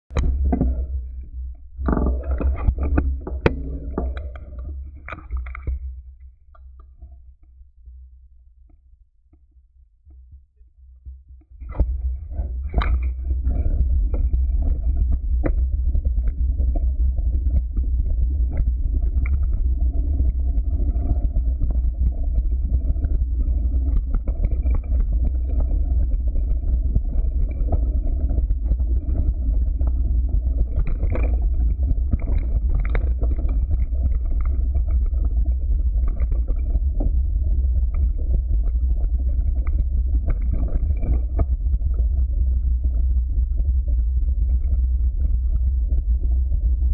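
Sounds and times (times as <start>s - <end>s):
wind on microphone: 11.6s - 46.9s.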